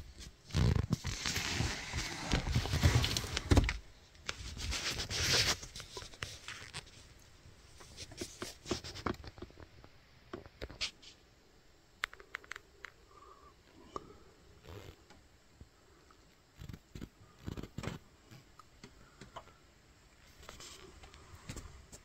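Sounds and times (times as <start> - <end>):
rustling and handling noise: 0.0 - 11.3, 20.2 - 22.0.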